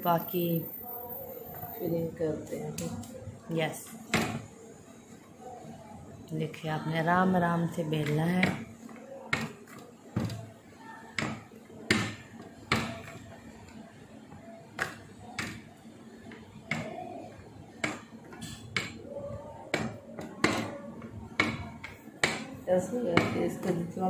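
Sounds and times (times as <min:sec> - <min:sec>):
rolling pin knocking on board: 0:09.3 - 0:09.6, 0:11.2 - 0:13.2, 0:21.4 - 0:22.5.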